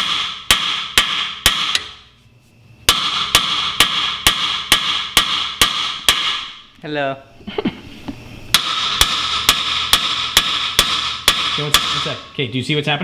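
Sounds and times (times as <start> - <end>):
hammer striking steel: 0.0 - 2.0, 2.9 - 6.6, 8.5 - 12.3.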